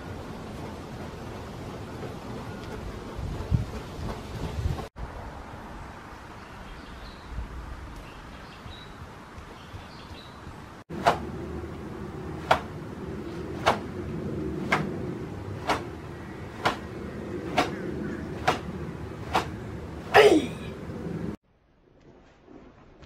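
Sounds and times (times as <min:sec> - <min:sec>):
quiet outdoor background: 0:00.0 - 0:23.0
fabric snapping with punches: 0:18.4 - 0:18.7.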